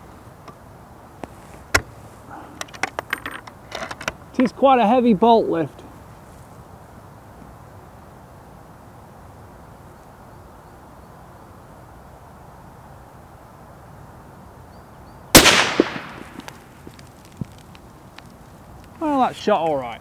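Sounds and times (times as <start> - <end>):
rifle shot: 15.3 - 16.5
faint clicks: 16.4 - 19.0.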